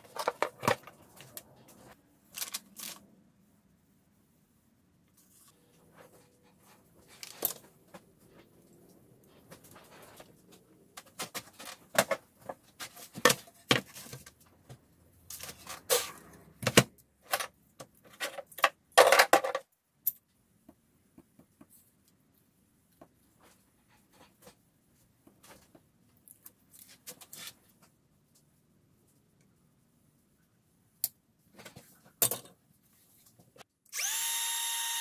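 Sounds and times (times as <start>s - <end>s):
tools and parts clattering: 0.0s - 1.4s, 16.7s - 19.7s.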